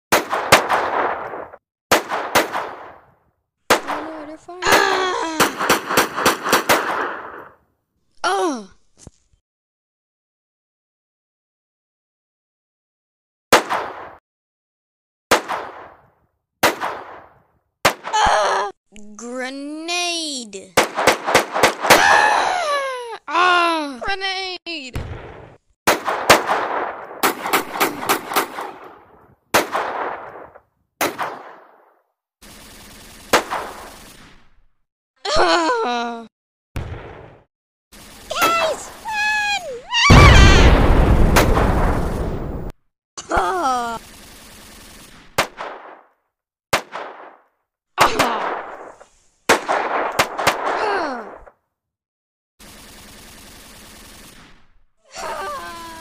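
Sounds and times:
gunshots: 0.1 - 3.1, 3.7 - 7.6, 13.5 - 14.2, 15.3 - 16.0, 16.6 - 18.2, 20.8 - 22.2, 25.0 - 34.7, 36.8 - 42.7, 44.0 - 51.5, 52.6 - 54.8
cry falling in pitch: 38.3 - 40.8, 55.1 - 56.0.

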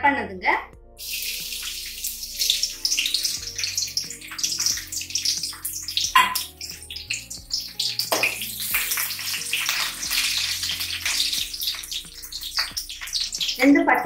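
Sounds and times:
garlic sizzling in hot oil: 1.0 - 14.0
metal spoon knocking on pan: 6.0 - 6.6.

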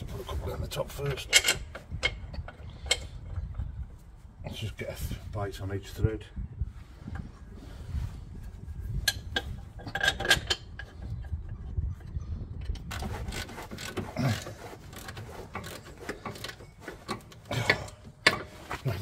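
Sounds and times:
metal bolts clinking: 0.9 - 3.2
rapid clicking and scraping of threads: 12.8 - 18.8.

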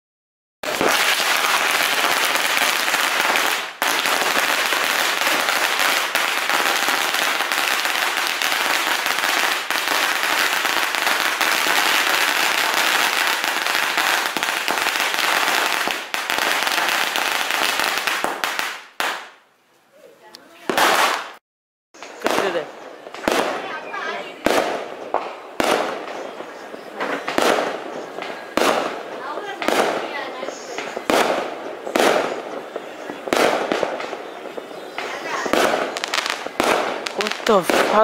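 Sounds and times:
firecrackers crackling: 0.6 - 19.4, 20.6 - 21.4, 22.0 - 38.0.

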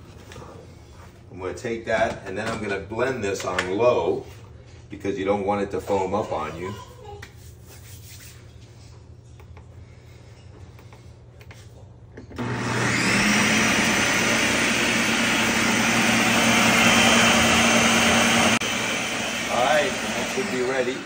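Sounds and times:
blender motor whining: 12.4 - 21.0.

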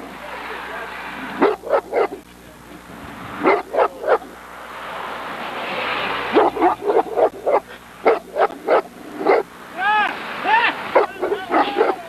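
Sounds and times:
dog barking inside car: 1.4 - 2.2, 3.4 - 4.4, 6.3 - 9.5, 10.9 - 12.0.

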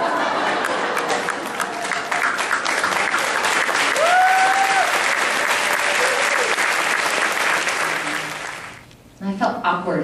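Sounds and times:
audience applauding: 0.4 - 8.8
person cheering: 3.9 - 5.1, 5.8 - 6.6.

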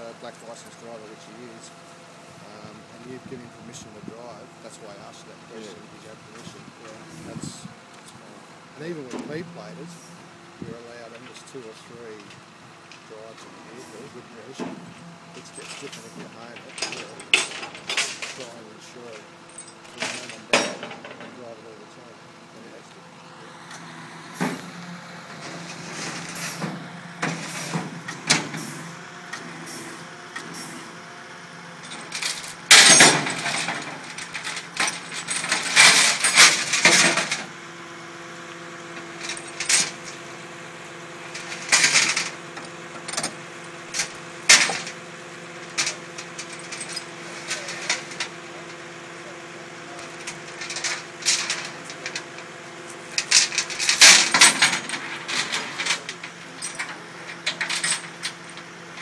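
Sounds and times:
tow truck engine hum: 0.0 - 59.0
metallic clanks and scrapes: 13.3 - 21.4, 25.3 - 30.9, 31.8 - 37.5, 41.3 - 45.0, 45.6 - 48.8, 49.9 - 58.7.

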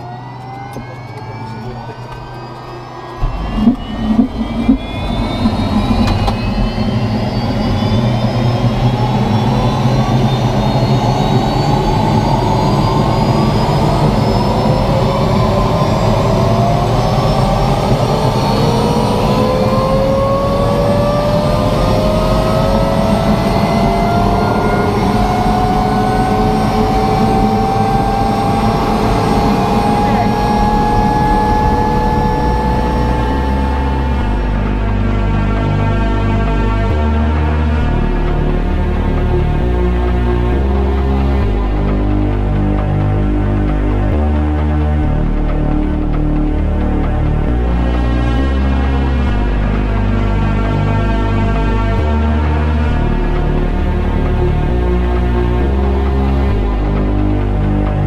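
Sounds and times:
sharp engine bursts: 0.0 - 9.2, 13.4 - 35.0
helicopter turbine engine starting: 0.0 - 58.0
rising turbine whine: 0.0 - 58.0.

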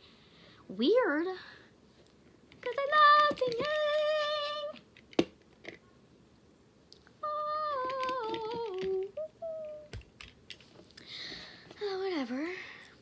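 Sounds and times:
girl humming: 7.2 - 10.0.

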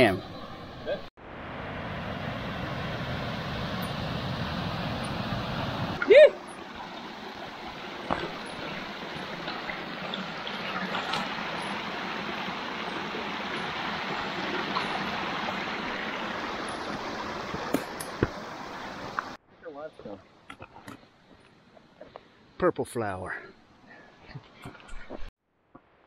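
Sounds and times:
creek water rushing over rocks: 1.5 - 19.4.

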